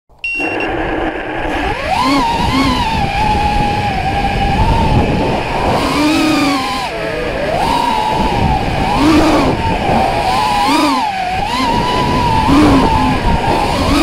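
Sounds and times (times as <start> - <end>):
short high beep: 0.2 - 1.0
drone motors whining: 0.2 - 14.0
propeller wash and wind noise: 0.4 - 14.0.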